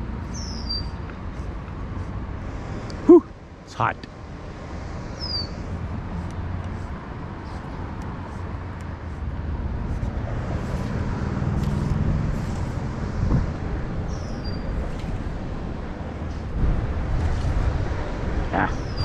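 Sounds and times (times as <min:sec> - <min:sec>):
wind buffeting microphone: 0:05.6 - 0:19.0.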